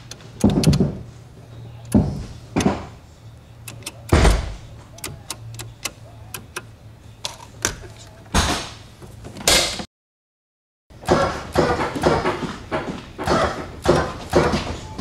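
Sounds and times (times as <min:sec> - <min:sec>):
hydraulics thumping: 0:00.0 - 0:01.1, 0:01.9 - 0:03.0, 0:03.6 - 0:06.6, 0:11.0 - 0:15.0
toggle switch and solenoid clicks: 0:03.6 - 0:04.4, 0:05.0 - 0:06.7.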